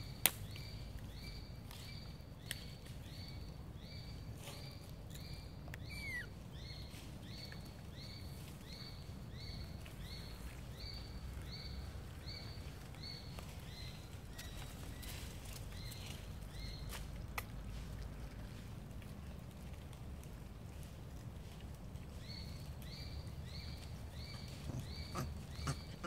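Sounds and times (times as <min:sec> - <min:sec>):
faint high animal chirps: 0:05.8 - 0:06.3.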